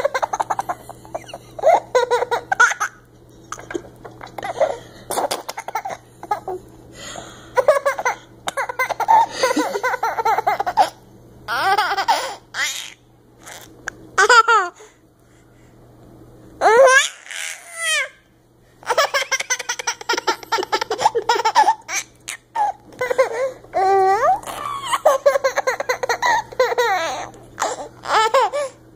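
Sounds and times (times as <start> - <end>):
baby laughing: 0.0 - 6.6, 7.6 - 14.8, 16.6 - 18.2, 18.8 - 28.8
baby squealing: 11.5 - 13.0, 16.6 - 18.2, 23.8 - 28.5.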